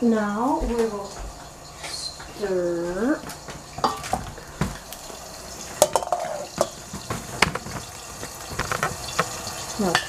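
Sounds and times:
wooden spoon knocking metal pots: 2.4s - 5.1s, 5.7s - 10.0s.

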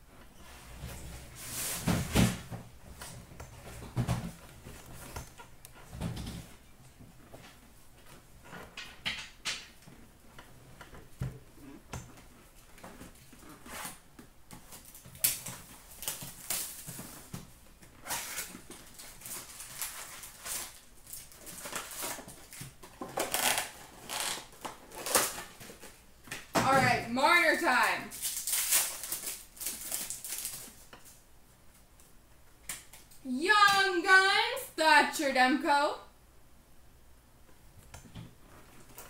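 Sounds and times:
cardboard and wrapper rustling: 10.7s - 27.0s, 27.7s - 31.3s.

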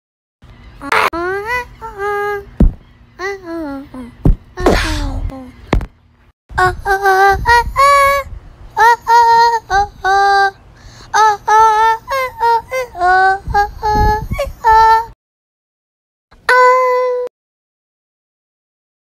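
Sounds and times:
high voice singing: 0.8s - 5.7s, 6.5s - 15.2s, 16.4s - 17.3s.

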